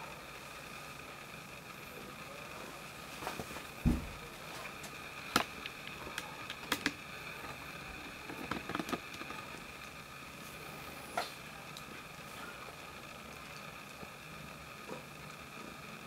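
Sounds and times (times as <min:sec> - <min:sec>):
faint room hum: 0:00.0 - 0:16.0
thin steady tones: 0:00.0 - 0:16.0
dull thump: 0:03.8 - 0:04.2.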